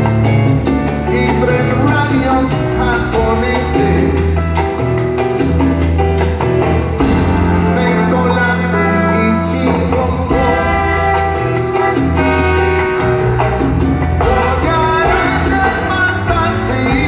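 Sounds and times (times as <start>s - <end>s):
latin band playing live: 0.0s - 17.0s.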